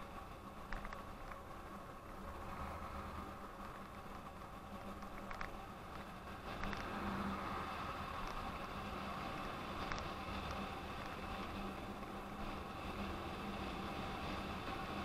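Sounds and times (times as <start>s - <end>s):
low motor hum: 0.0s - 15.0s
wind and road noise: 0.0s - 15.0s
light clicks and rattles: 0.5s - 1.8s, 3.6s - 7.0s.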